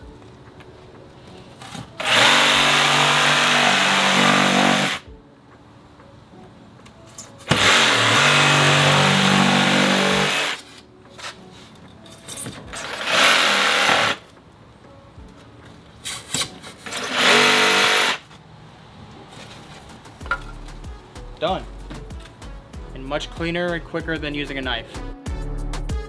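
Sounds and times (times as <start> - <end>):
jigsaw cutting foam board: 2.0 - 5.0, 7.5 - 10.6, 12.8 - 14.2, 17.0 - 18.2.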